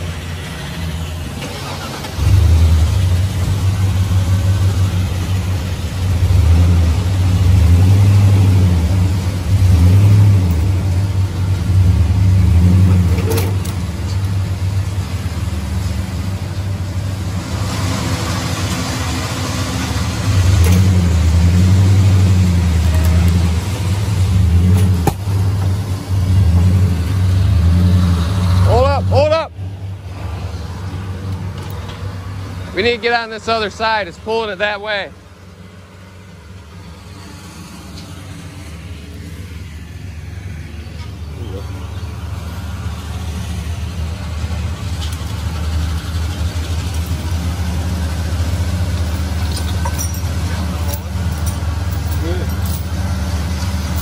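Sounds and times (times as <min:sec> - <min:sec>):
engine revving under load: 0:00.0 - 0:34.0, 0:37.0 - 0:54.0.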